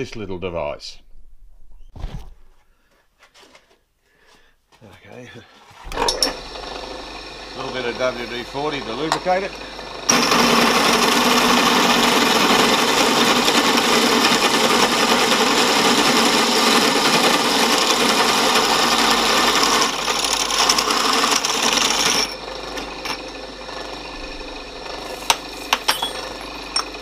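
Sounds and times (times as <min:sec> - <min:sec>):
hole saw grinding through metal: 0:05.8 - 0:27.0.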